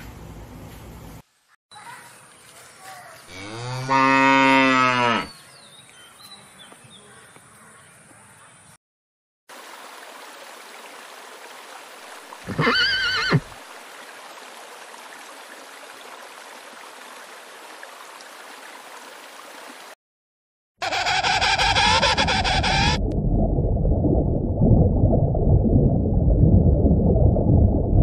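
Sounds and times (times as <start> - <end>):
horse whinnying: 12.5 - 13.6.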